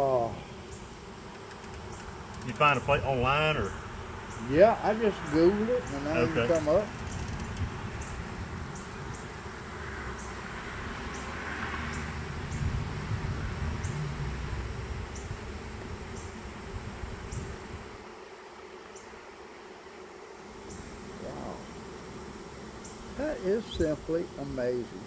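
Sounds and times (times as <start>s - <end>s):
bees buzzing: 0.0s - 25.0s.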